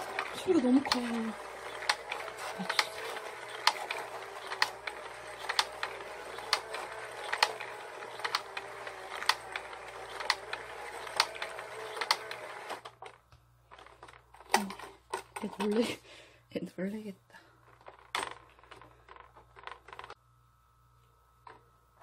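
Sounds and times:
toy motor whirring: 0.0 - 15.9, 17.6 - 20.2
sharp toy clicks: 0.1 - 12.4.

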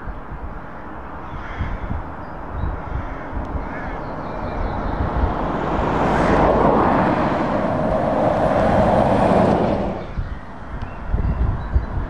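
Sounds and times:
truck driving past: 4.1 - 10.6.

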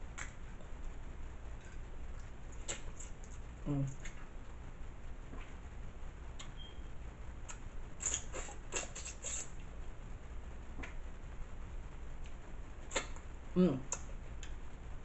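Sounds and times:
mouth sounds: 8.0 - 9.5.

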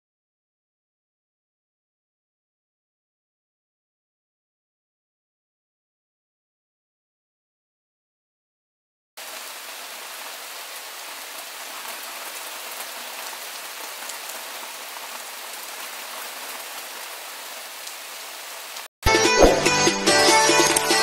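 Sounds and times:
steady rain falling: 9.2 - 18.9.

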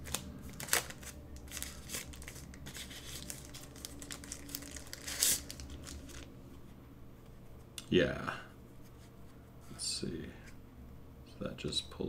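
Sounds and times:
packaging rustling and crinkling: 0.0 - 6.3.

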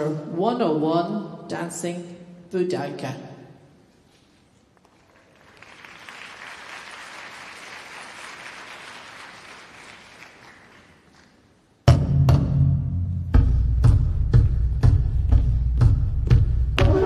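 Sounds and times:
audience applause: 4.8 - 11.5
music with heavy drum strikes: 11.9 - 17.0.

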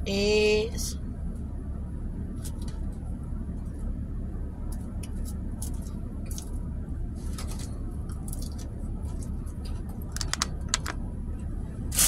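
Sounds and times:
low rumble in van cabin: 0.0 - 12.0
plastic fork clicking in container: 10.2 - 10.9.

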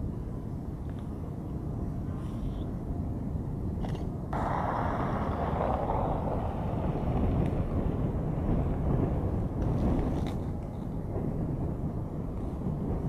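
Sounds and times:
tornado low rumble: 3.2 - 13.0
tornado loud hiss: 4.4 - 10.2.

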